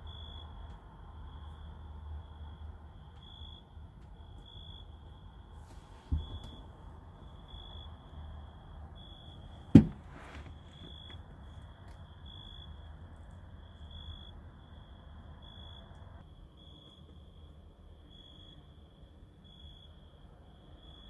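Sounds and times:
sharp thump: 0:09.7 - 0:10.9.

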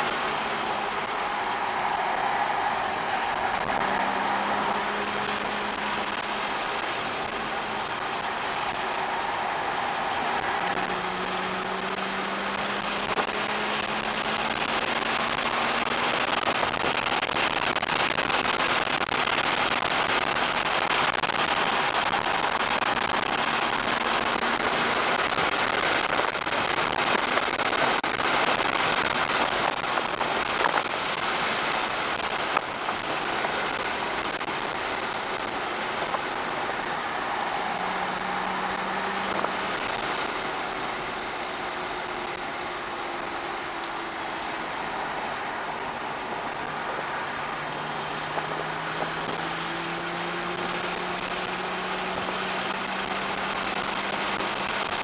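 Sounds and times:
car engine at speed: 0:00.0 - 0:55.0
wind and road noise: 0:00.0 - 0:55.0.

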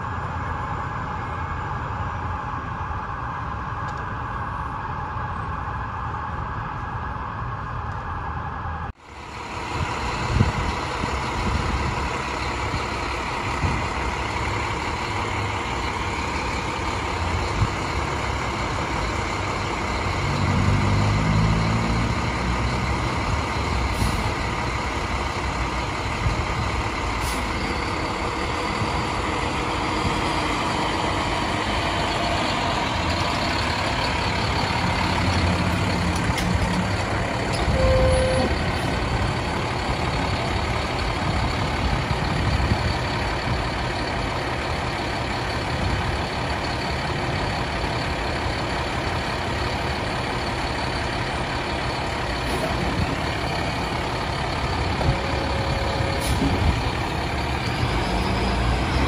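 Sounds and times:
truck diesel engine running: 0:00.0 - 0:59.0
short beep: 0:37.7 - 0:38.5.

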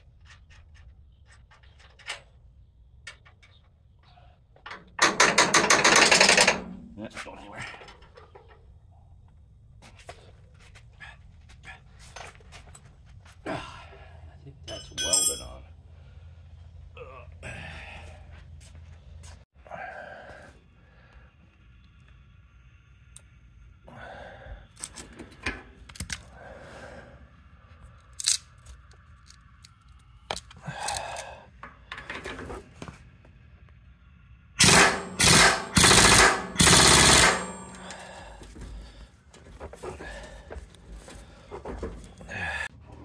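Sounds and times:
impact wrench hammering: 0:05.0 - 0:06.7, 0:34.6 - 0:38.2
tool and socket clinking: 0:14.7 - 0:15.6.

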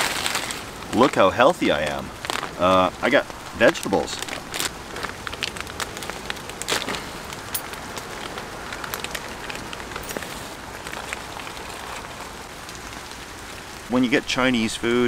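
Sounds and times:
plastic packet crinkling: 0:00.0 - 0:12.4
rain pattering on leaves: 0:00.0 - 0:15.0.

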